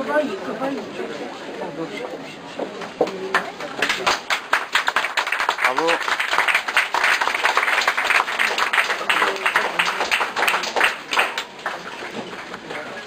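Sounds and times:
crowd applauding: 3.3 - 13.0.

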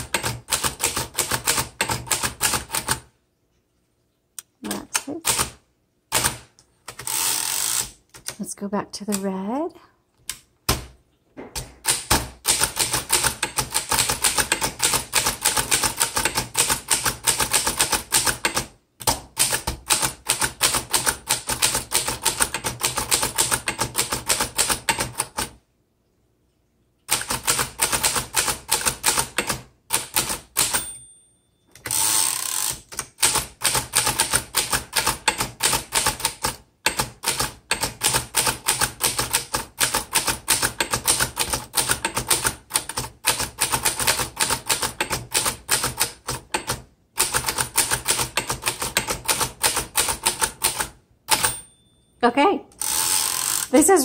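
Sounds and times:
typewriter keys clacking: 0.0 - 3.0, 11.6 - 25.5, 27.1 - 30.9, 32.7 - 51.7.

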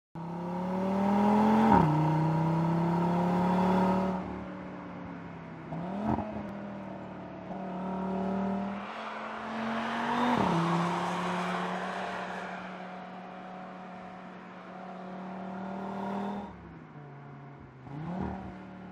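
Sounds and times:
car engine revving through gears: 0.2 - 4.3, 5.7 - 6.7, 7.5 - 12.4, 14.9 - 16.6, 17.8 - 18.8.

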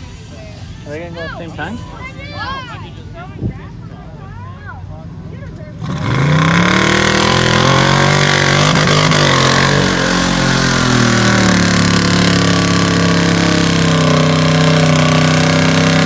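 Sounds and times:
truck engine revving: 5.8 - 16.0
tyres churning through mud: 5.8 - 16.0.

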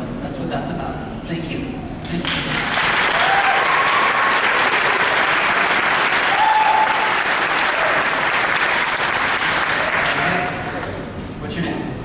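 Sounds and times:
large audience applauding: 2.2 - 11.0
short cries from crowd: 6.2 - 8.1.

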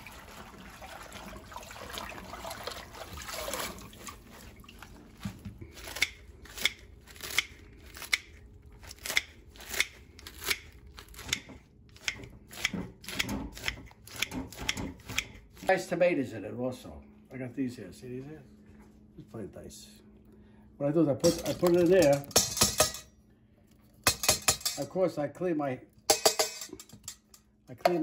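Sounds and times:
scissors snipping crisp leaves: 5.8 - 11.4.

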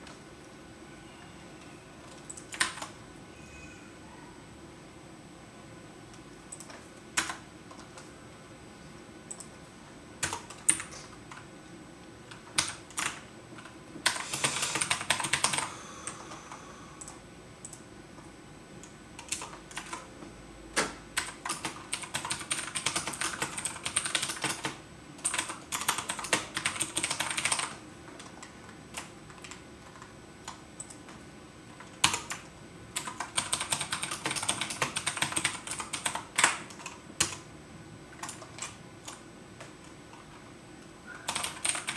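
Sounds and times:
typing on a computer keyboard: 2.0 - 3.0, 6.5 - 8.1, 9.3 - 9.6, 10.2 - 11.5, 12.3 - 16.4, 18.8 - 20.1, 20.8 - 31.1, 31.8 - 37.5, 38.2 - 40.2, 41.1 - 41.9.

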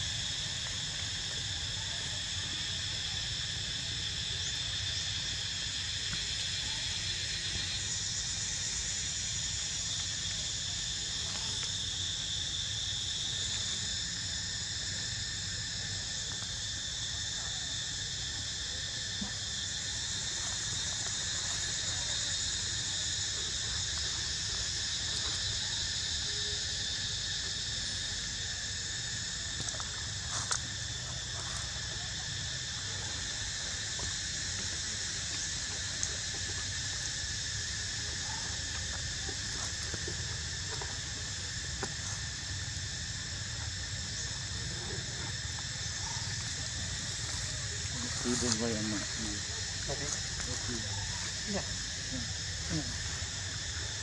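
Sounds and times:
high-pitched insect chorus: 0.0 - 54.0.

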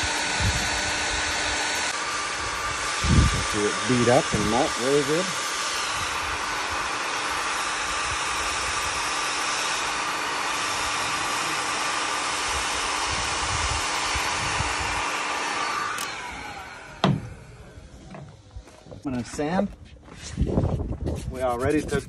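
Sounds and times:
heat gun fan hissing and humming: 0.0 - 20.6
sharp knock: 17.0 - 17.3.

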